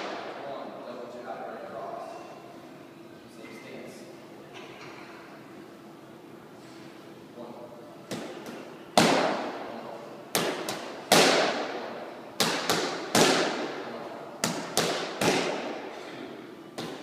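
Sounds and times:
boxing gloves striking focus mitts: 8.1s - 9.5s, 10.3s - 11.8s, 12.4s - 13.8s, 14.4s - 15.9s, 16.8s - 17.0s.

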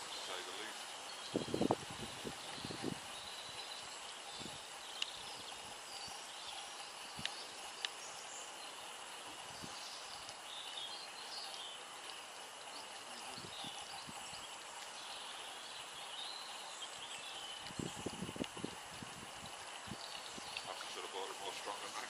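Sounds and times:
steady hiss: 0.0s - 22.0s.

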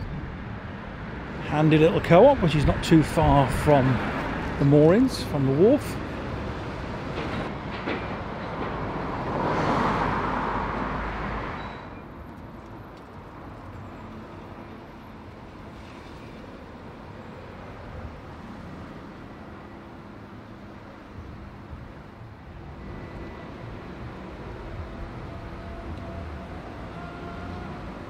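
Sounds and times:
street traffic noise: 0.0s - 28.0s
vehicle passing: 8.8s - 11.6s.

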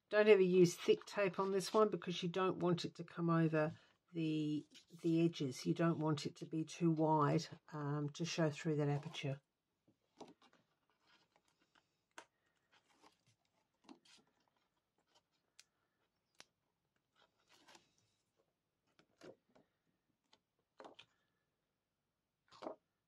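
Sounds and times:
paper and plastic rustling: 10.1s - 15.5s, 17.1s - 19.6s, 22.5s - 22.8s.

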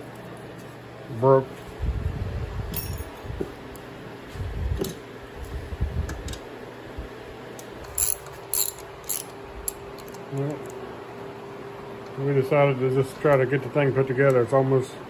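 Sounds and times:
ratchet wrench clicking: 7.9s - 10.2s.

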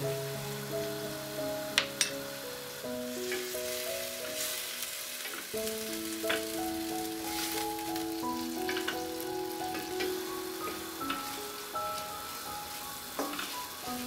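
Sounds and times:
background music of held notes: 0.0s - 14.0s
vegetables sizzling in frying pan: 0.0s - 14.0s.

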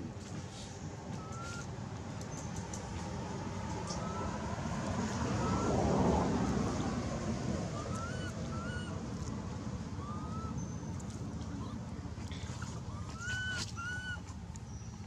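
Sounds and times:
outdoor background rumble: 0.0s - 15.0s
short chirped calls: 1.2s - 1.7s, 12.8s - 14.9s.

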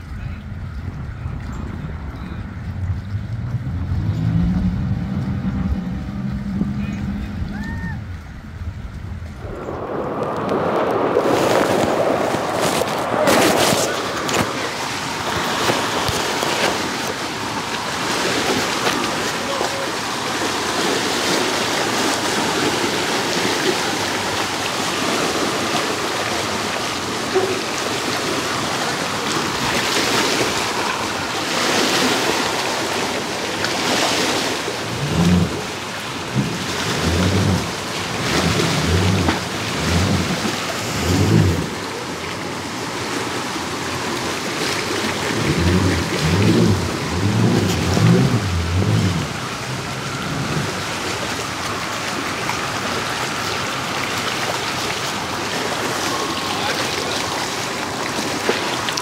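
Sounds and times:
wind buffeting microphone: 0.0s - 18.0s
water splashing against ramp: 0.0s - 59.0s.

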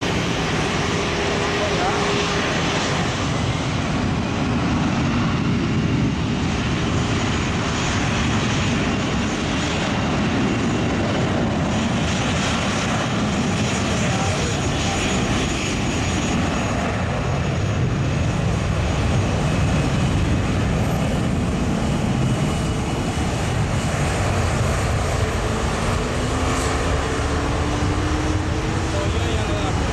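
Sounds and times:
jet engines rumbling: 0.0s - 29.9s.

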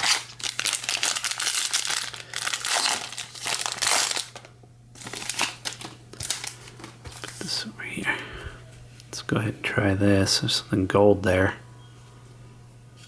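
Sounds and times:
foil wrapper crinkling: 0.0s - 7.5s.

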